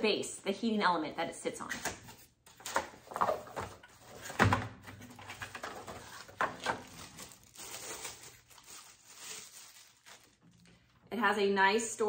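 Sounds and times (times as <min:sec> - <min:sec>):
plastic and cardboard rustling: 0:02.5 - 0:11.0.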